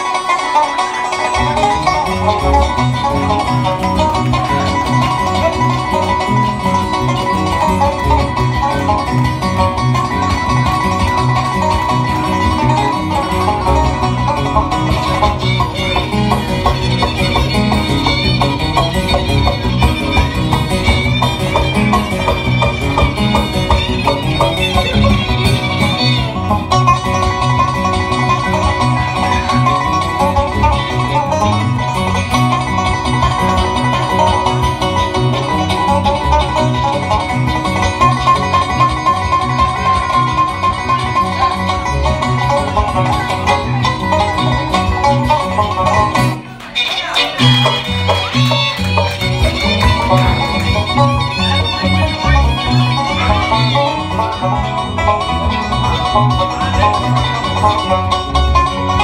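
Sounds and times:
bluegrass band playing: 0.0s - 59.0s.

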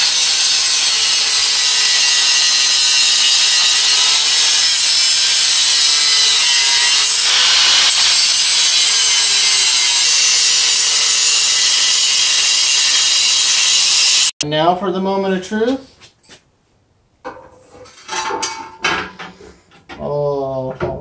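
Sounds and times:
angle grinder cutting steel: 0.0s - 14.4s.

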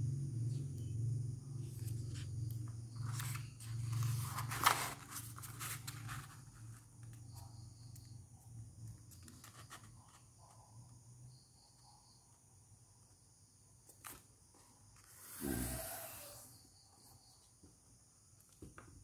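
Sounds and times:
steady low hum: 0.0s - 9.2s
paper rustling and crinkling: 3.0s - 7.2s, 9.1s - 10.2s.

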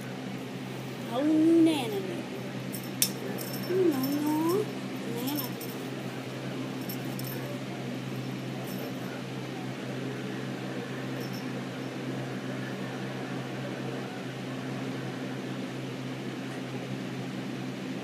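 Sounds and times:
appliance hum: 0.0s - 18.0s.

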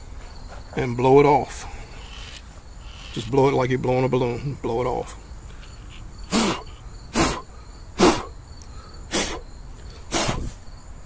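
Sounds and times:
person blowing puffs of breath: 5.5s - 10.6s.

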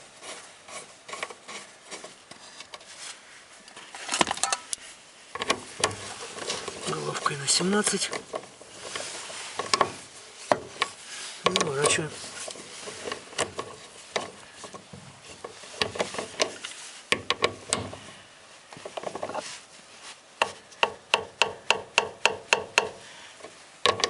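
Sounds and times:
scattered clicks and scrapes: 0.2s - 3.0s, 10.7s - 16.8s.

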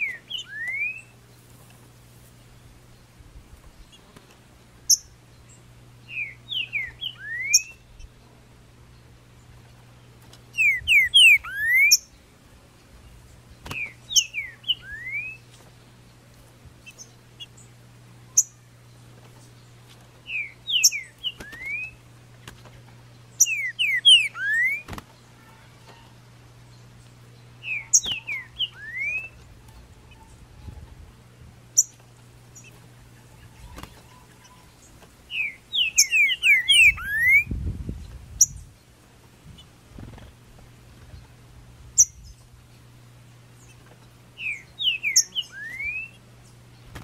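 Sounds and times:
bird singing whistled phrases: 0.0s - 1.1s, 6.0s - 7.9s, 10.6s - 12.1s, 13.8s - 15.4s, 20.3s - 22.0s, 23.4s - 24.9s, 27.6s - 29.4s, 35.3s - 37.5s, 44.4s - 46.2s
faint low hum: 0.0s - 47.0s.

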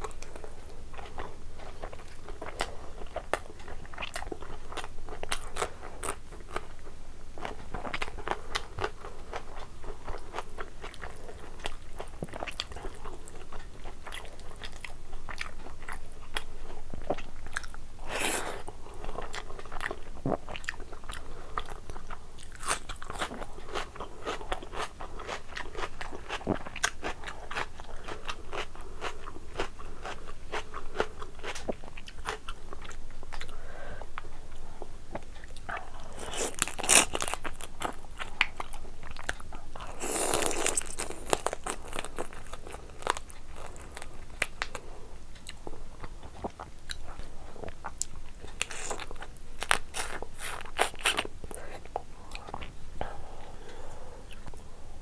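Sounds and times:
crunching and chewing: 0.0s - 33.6s, 35.1s - 52.8s.

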